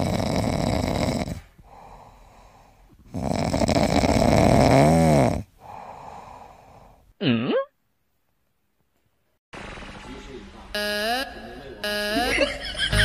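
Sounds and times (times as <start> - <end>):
person snoring: 0.0 - 7.0.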